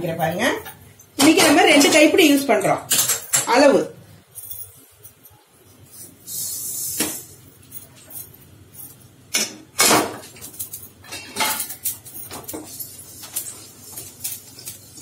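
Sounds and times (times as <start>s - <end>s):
seeds hissing in hot pan: 6.2s - 7.3s
metallic clinks and knocks: 10.2s - 13.4s.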